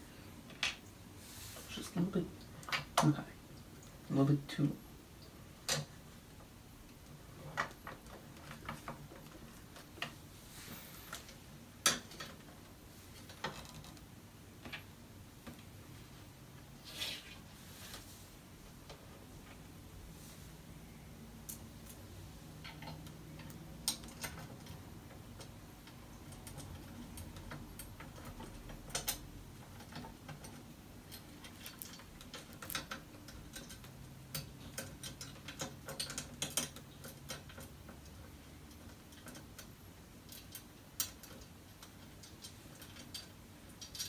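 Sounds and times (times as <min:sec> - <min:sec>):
small metal parts clicking: 0:22.6 - 0:44.0.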